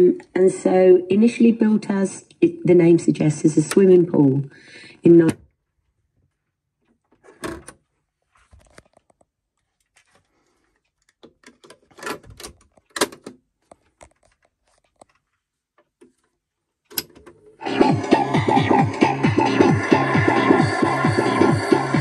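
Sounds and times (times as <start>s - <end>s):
cassette buttons clicking: 3.6s - 4.0s.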